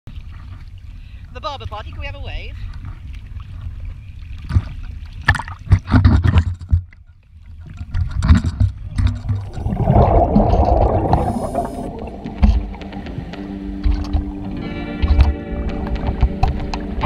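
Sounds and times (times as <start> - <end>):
water sloshing and splashing: 0.1 - 15.3
muffled underwater rushing and bubbling: 0.1 - 17.0
low rumbling buffets: 9.0 - 14.6.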